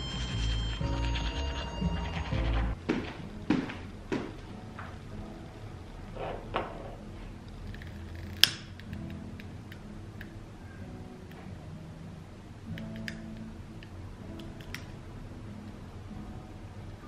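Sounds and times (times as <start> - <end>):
sharp click: 12.7 - 13.5.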